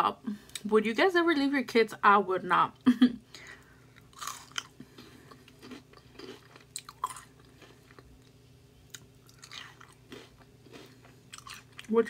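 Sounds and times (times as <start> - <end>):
chewing crunchy snacks: 3.9 - 12.0.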